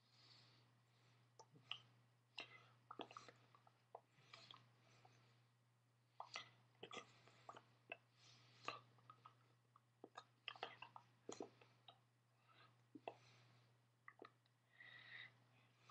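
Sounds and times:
mouth smacks and hand clicks: 0:01.4 - 0:04.6, 0:06.2 - 0:12.0, 0:14.0 - 0:14.5.

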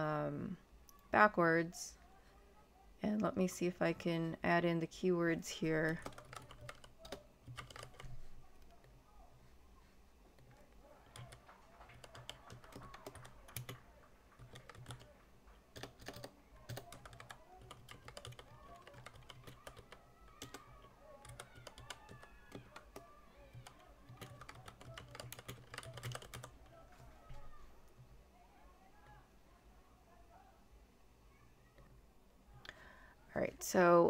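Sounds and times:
keyboard typing clicks: 0:05.9 - 0:08.8, 0:11.1 - 0:13.8, 0:14.4 - 0:15.1, 0:15.7 - 0:26.6.

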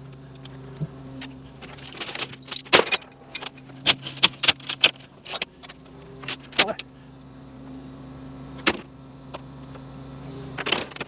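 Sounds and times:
engine idling: 0:00.0 - 0:11.0
steel chains clanking: 0:01.2 - 0:06.9.

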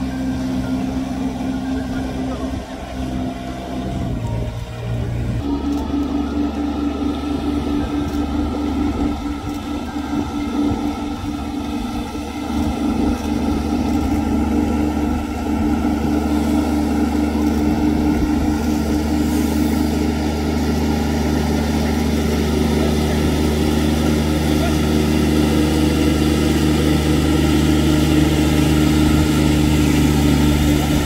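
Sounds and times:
rice transplanter engine running: 0:00.0 - 0:31.0.

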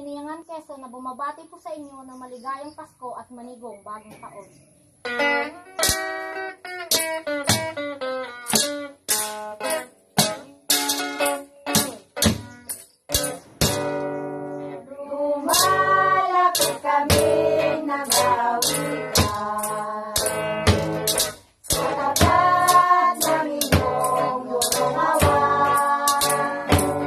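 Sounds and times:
plucked guitar: 0:05.0 - 0:27.0
makeshift cymbal: 0:05.8 - 0:06.3, 0:15.5 - 0:27.0
group singing a carol: 0:14.7 - 0:27.0.

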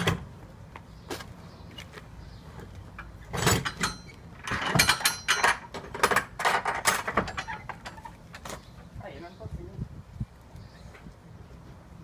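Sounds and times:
metal gate latch clanking: 0:03.3 - 0:08.5.

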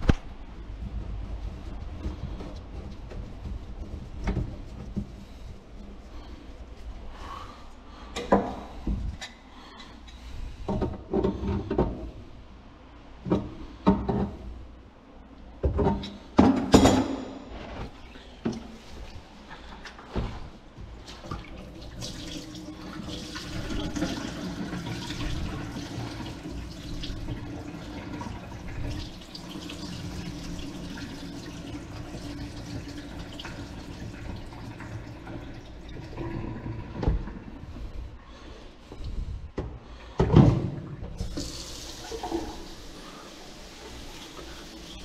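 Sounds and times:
faucet running into sink: 0:21.3 - 0:36.2, 0:41.2 - 0:45.0.

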